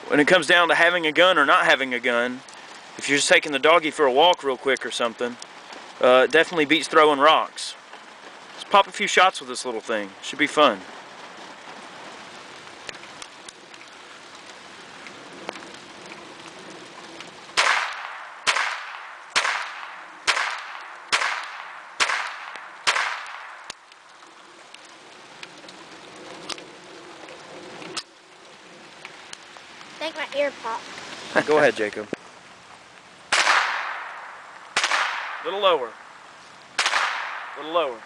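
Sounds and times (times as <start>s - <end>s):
pistol shots: 17.6s - 23.5s, 33.3s - 35.4s, 36.8s - 37.6s.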